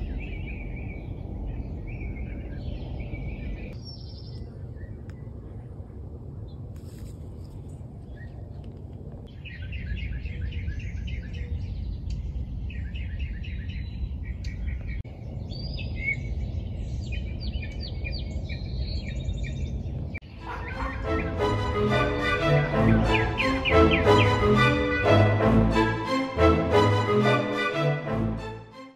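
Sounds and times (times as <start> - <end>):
songbirds chirping and trilling: 0.0 - 28.6
music: 20.3 - 28.9.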